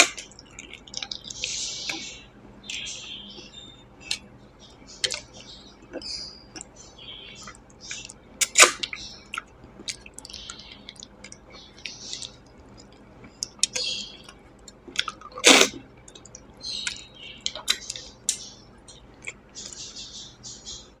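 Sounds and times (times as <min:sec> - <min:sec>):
wet chewing and lip smacks: 0:00.0 - 0:02.0, 0:05.0 - 0:06.8, 0:07.4 - 0:19.8.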